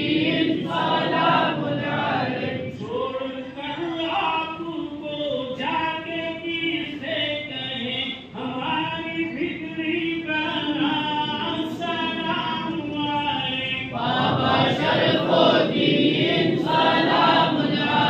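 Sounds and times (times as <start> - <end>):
men chanting together: 0.0 - 3.0, 13.8 - 18.0.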